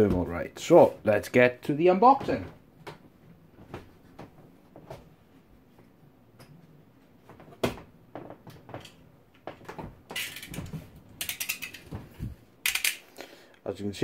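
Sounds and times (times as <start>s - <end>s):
utility knife blade ratcheting: 12.6s - 13.0s.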